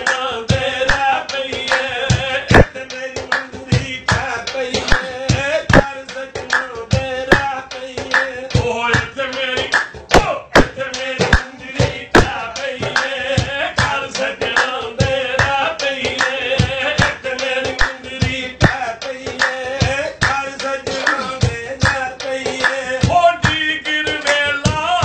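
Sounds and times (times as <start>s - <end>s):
man singing folk song: 0.0s - 25.0s
hands drumming on metal pot: 0.5s - 25.0s.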